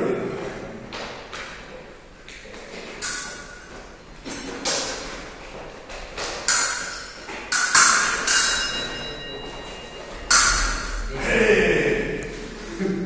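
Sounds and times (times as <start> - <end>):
fencing blades clashing: 1.0 - 11.1.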